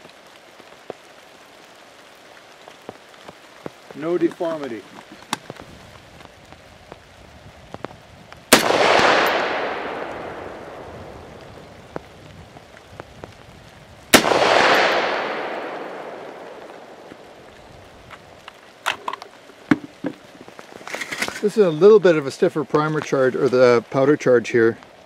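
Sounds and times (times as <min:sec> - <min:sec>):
rifle shots with long echo: 0:08.5 - 0:11.7, 0:14.1 - 0:17.5.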